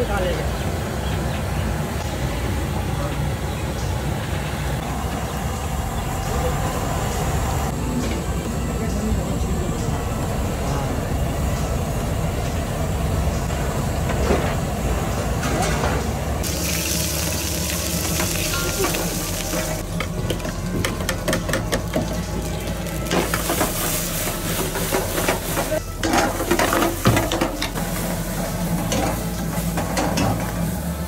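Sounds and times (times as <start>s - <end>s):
food sizzling in a pan: 16.4s - 19.8s.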